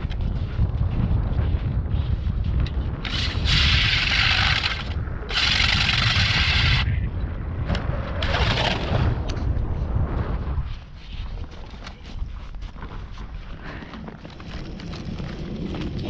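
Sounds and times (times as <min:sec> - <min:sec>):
wind rumble on microphone: 0:00.0 - 0:16.0
ice auger grinding ice: 0:03.0 - 0:06.9.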